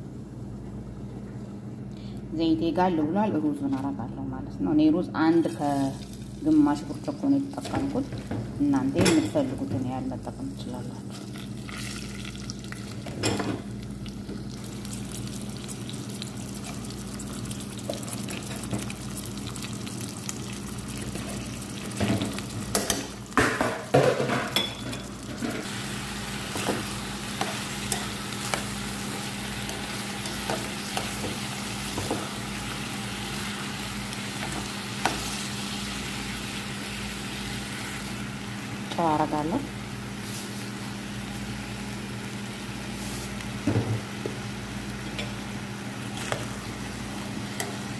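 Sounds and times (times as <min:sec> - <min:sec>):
rice sizzling in hot oil: 0:14.0 - 0:23.4, 0:25.6 - 0:47.9.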